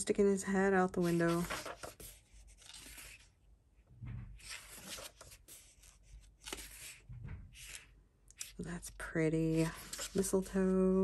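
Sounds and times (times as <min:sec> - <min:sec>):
paper page rustling: 0:01.0 - 0:03.3, 0:04.3 - 0:08.6, 0:09.4 - 0:10.7.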